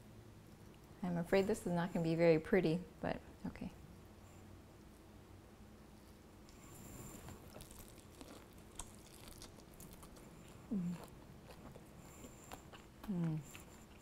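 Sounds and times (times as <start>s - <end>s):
person chewing food: 6.5s - 14.0s
person humming mm: 10.7s - 11.1s, 13.0s - 13.6s.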